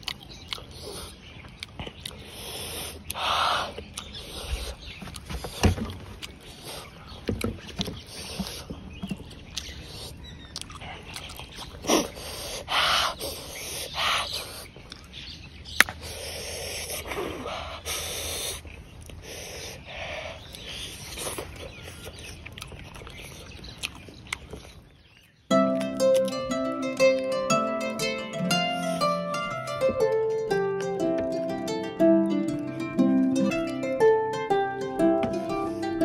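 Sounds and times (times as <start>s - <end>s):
wet chewing and lip-smacking: 0.0s - 19.8s, 20.4s - 27.4s.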